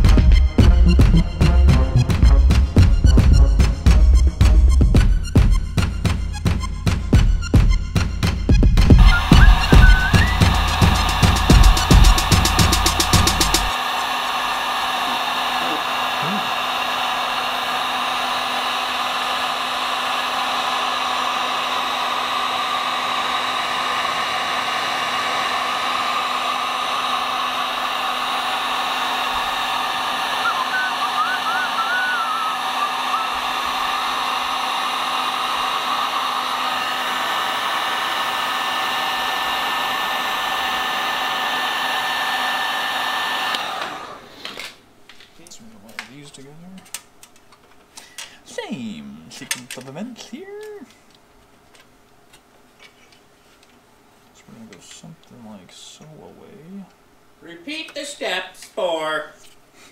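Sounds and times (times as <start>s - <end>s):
heat gun blowing: 9.0s - 44.7s.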